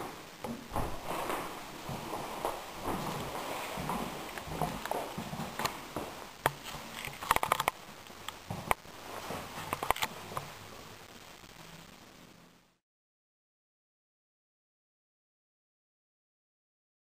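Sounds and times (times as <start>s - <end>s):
footsteps on wooden floor: 0.0s - 7.0s, 8.4s - 10.6s.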